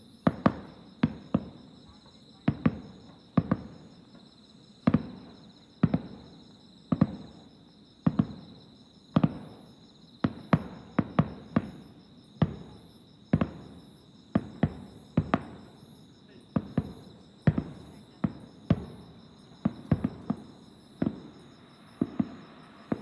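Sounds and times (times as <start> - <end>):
distant fireworks bursting: 0.0 - 23.0.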